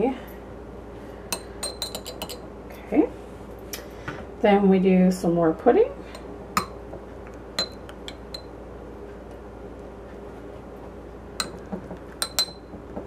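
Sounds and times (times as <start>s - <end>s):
metal spoon clinking against glass: 1.3s - 2.4s, 7.6s - 8.5s, 12.2s - 12.8s.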